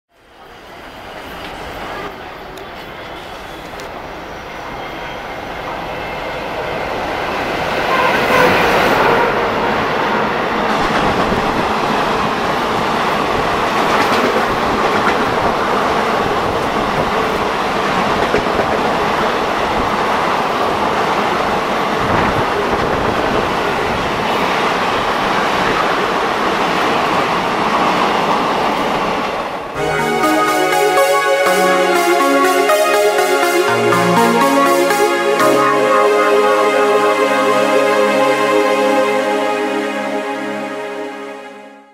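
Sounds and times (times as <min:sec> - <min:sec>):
electronic music: 0:29.8 - 0:41.9.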